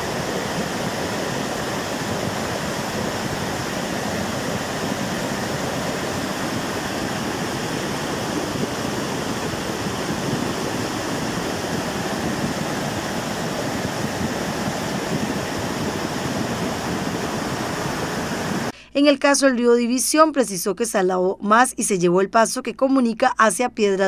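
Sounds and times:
creek water rushing: 0.0s - 18.7s.

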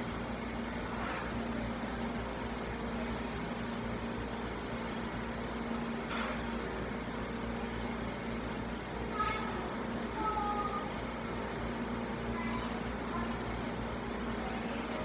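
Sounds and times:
appliance humming and hissing: 0.0s - 15.0s.

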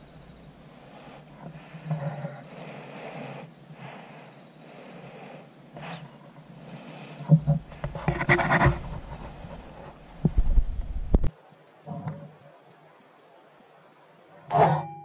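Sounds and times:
person breathing heavily: 0.6s - 8.0s.

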